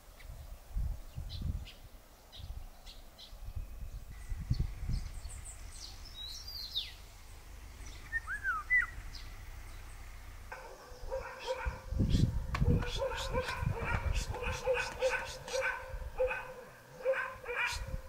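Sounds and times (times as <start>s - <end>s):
low rumble of wind: 0.0s - 18.0s
small birds chirping: 0.0s - 18.0s
short sweeping whistles: 8.1s - 9.0s.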